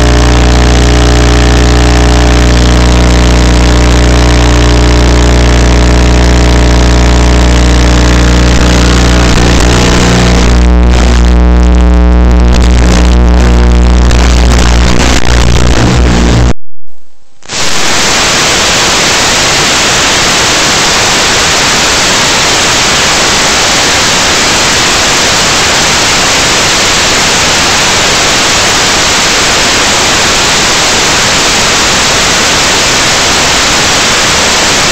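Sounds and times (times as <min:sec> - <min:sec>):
loud music with heavy bass: 0:00.0 - 0:16.6
white noise static hiss: 0:00.0 - 0:34.9.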